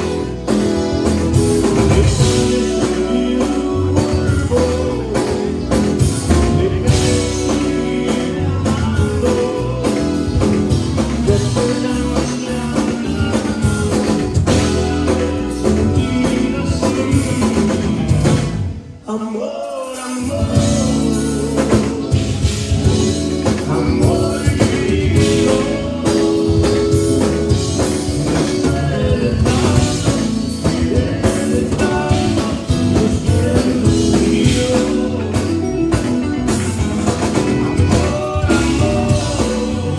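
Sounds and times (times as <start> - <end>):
drum kit: 0.0 - 19.0, 19.8 - 39.9
electric bass: 0.0 - 19.0, 20.3 - 39.9
electric guitars: 0.0 - 19.1, 20.0 - 39.9
man singing into microphone: 1.4 - 36.0, 37.4 - 39.9.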